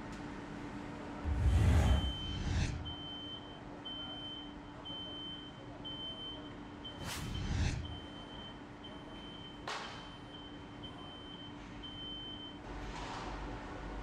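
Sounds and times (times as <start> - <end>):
low rumble: 1.2 - 3.1, 7.0 - 8.1
steady machine hum: 1.2 - 3.3, 6.8 - 8.3
high electronic beep: 1.4 - 3.6, 6.9 - 8.5.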